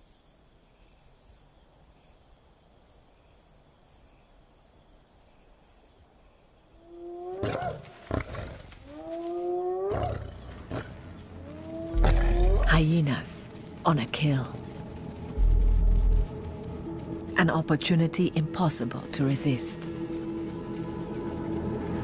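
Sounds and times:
crickets chirping: 0.0 - 22.0
hyenas whooping: 8.8 - 12.8.

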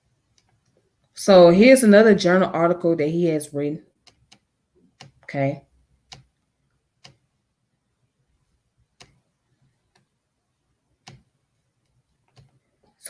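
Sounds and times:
computer mouse clicks: 0.3 - 0.8, 3.9 - 5.3, 6.1 - 6.4, 7.0 - 7.3, 8.9 - 10.2, 11.0 - 12.9.

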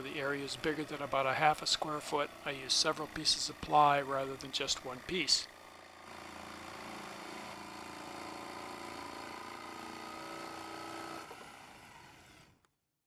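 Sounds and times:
electric jigsaw cutting plywood: 5.6 - 12.6.

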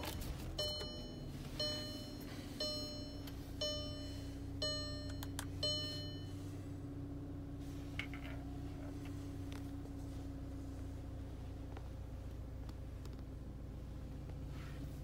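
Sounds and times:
car warning chime: 0.0 - 7.0
steady low hum: 0.0 - 15.0.

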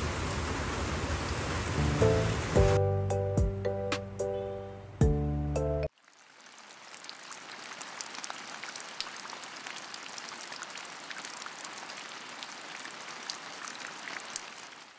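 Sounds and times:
steady rain falling: 0.0 - 2.8, 5.9 - 14.9
raindrops ticking on hard surface: 5.9 - 14.9.

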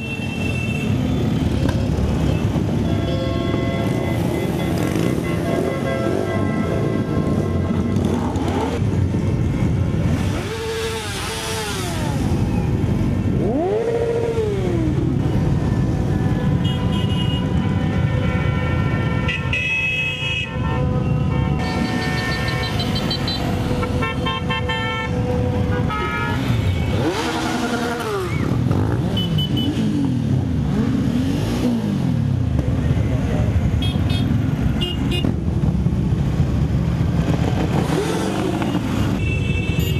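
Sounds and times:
vehicle horns honking: 2.2 - 10.7, 15.7 - 30.1, 33.7 - 35.4, 38.6 - 39.9
motorcycles riding past: 25.0 - 39.9.

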